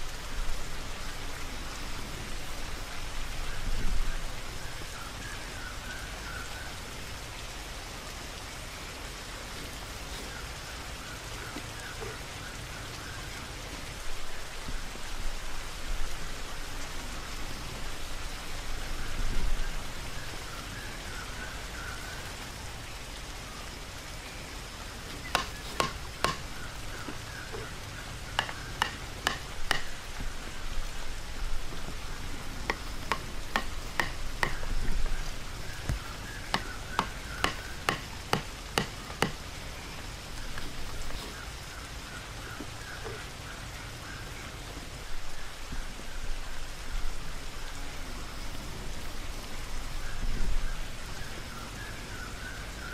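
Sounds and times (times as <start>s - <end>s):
outdoor hiss: 0.0s - 52.9s
sticks clicking and knocking: 25.2s - 26.5s, 28.4s - 29.9s, 32.6s - 34.7s, 35.8s - 39.4s.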